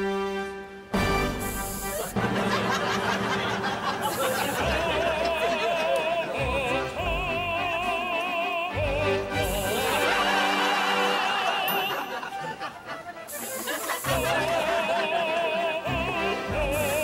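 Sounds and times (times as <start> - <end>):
background music: 0.0 - 17.0
operatic high voice singing: 4.2 - 12.7, 14.0 - 17.0.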